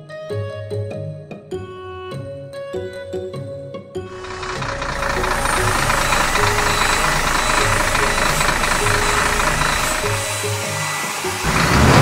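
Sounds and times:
cartoon truck engine: 0:04.1 - 0:12.0.

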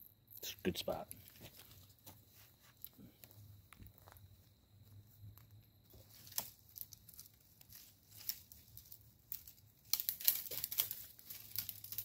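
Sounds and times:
crackles: 0:00.3 - 0:12.0
dry crinkling and rustling: 0:00.9 - 0:12.0.

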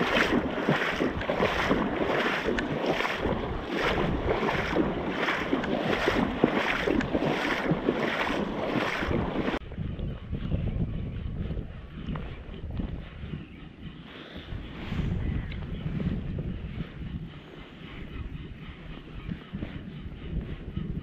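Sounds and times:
water swishing with footsteps: 0:00.0 - 0:09.6
wind rumble on microphone: 0:00.0 - 0:21.0.

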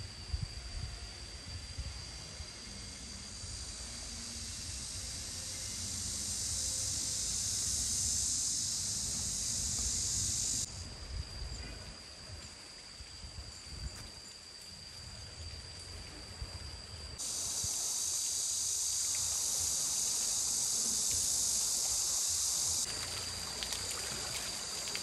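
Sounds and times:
thin high whine: 0:00.0 - 0:10.8
insects buzzing: 0:00.0 - 0:25.0.

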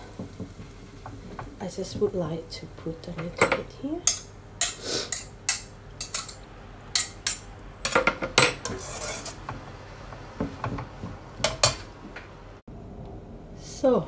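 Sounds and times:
wooden spatula scraping metal wok: 0:07.2 - 0:12.0.

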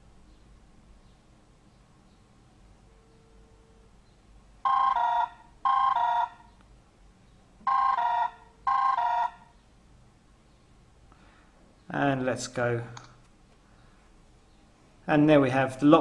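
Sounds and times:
phone ringtone warbling: 0:04.6 - 0:06.5, 0:07.7 - 0:09.4.

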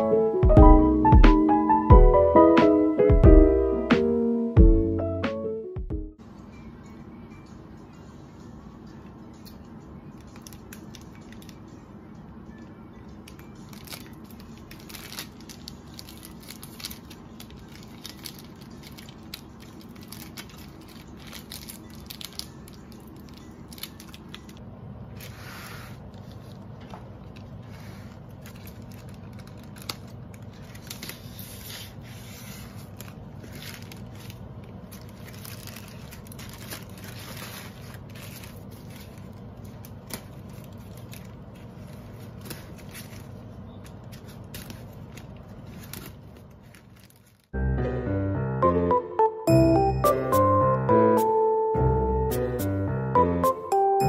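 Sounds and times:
plastic crinkling: 0:10.2 - 0:11.7, 0:13.2 - 0:47.6.

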